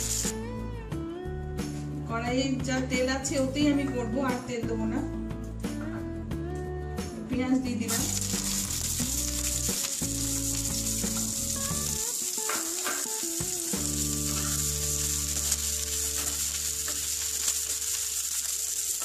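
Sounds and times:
onions sizzling in oil: 0.0s - 0.4s, 7.9s - 19.0s.

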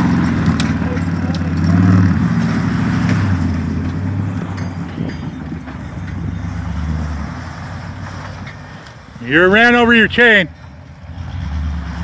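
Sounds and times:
pickup truck engine humming: 0.0s - 12.0s.

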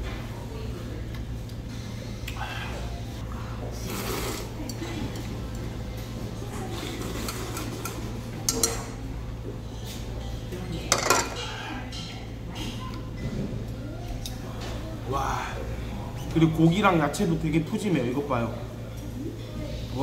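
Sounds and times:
slurping noodles: 3.8s - 4.5s.

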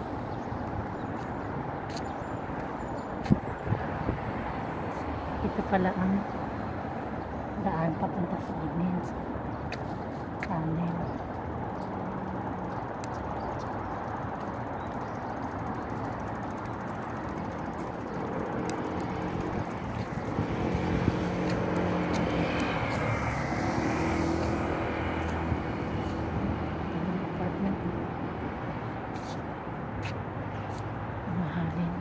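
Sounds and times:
road traffic noise: 0.0s - 32.0s
vehicle passing: 11.0s - 32.0s.

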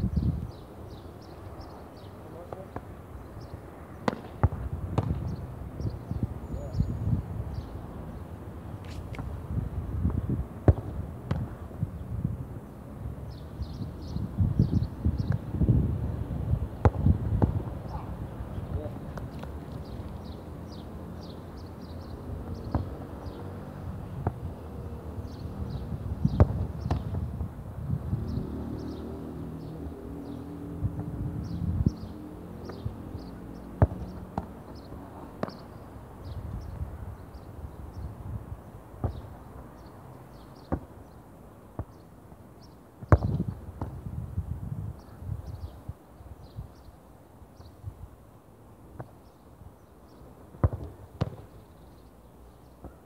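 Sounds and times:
football kick: 4.0s - 5.4s, 16.8s - 17.6s, 22.7s - 22.9s, 26.3s - 27.3s, 39.0s - 39.2s, 43.1s - 44.0s, 50.6s - 51.5s.

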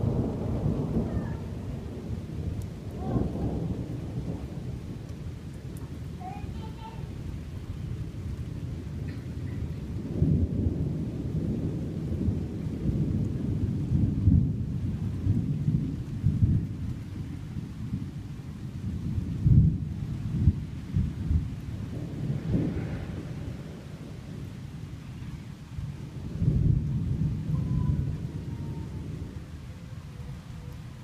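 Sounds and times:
thunder rumbling: 0.0s - 31.0s.

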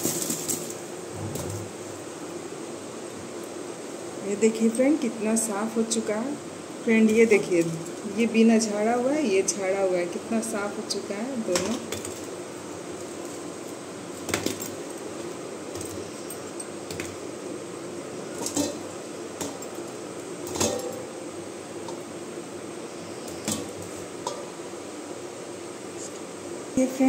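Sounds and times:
steady background noise: 0.0s - 27.0s
dough balls clinking on steel plate: 20.4s - 21.3s.

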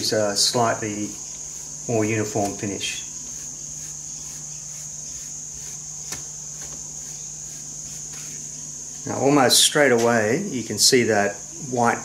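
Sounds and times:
rubber pad swishing on wood: 1.0s - 9.2s.

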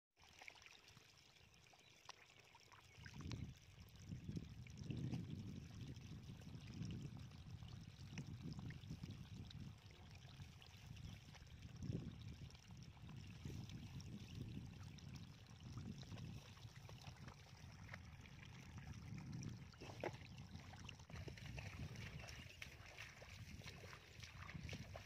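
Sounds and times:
fish splashing in shallow water: 0.2s - 4.8s, 13.1s - 25.0s.

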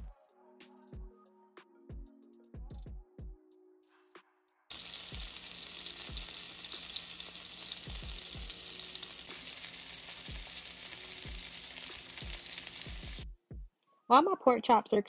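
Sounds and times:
meat sizzling in a frying pan: 4.7s - 13.2s.

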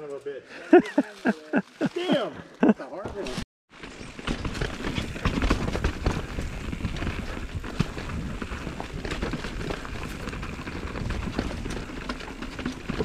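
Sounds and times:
bike tyres clattering on rock: 3.1s - 13.0s
bike rattling: 3.2s - 13.0s.

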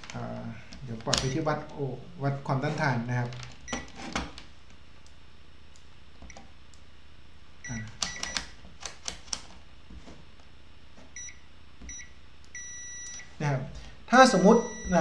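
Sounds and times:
short high beeps: 14.3s - 15.0s.

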